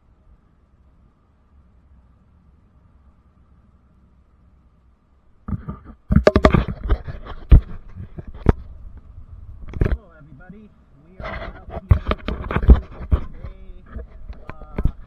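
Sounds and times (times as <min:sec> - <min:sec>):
sharp knocks and scrapes: 0:05.5 - 0:08.7, 0:09.6 - 0:10.0, 0:11.2 - 0:15.0.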